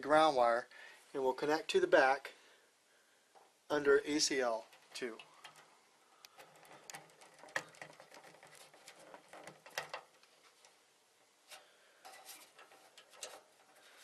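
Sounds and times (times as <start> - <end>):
wire connector clicks and rustles: 4.6 - 10.8, 12.1 - 13.8.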